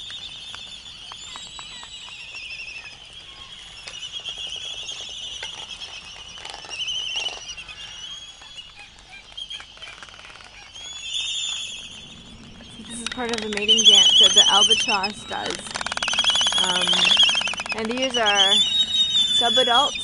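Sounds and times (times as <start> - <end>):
albatross colony calling: 1.0 - 20.0
rapid clicking: 13.0 - 18.4.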